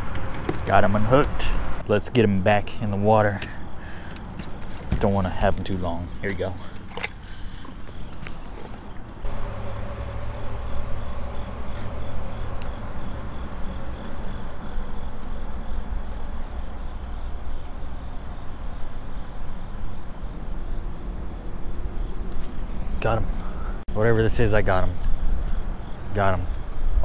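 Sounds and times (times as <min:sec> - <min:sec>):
electric motor humming: 0:09.3 - 0:15.1.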